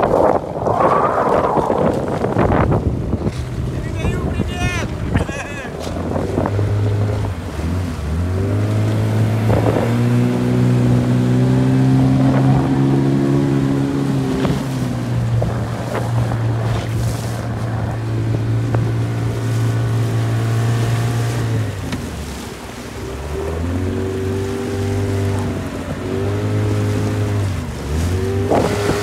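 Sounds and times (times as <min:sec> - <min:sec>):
outboard motor running: 0:00.0 - 0:29.0
water noise: 0:00.0 - 0:29.0
water slapping: 0:00.0 - 0:29.0.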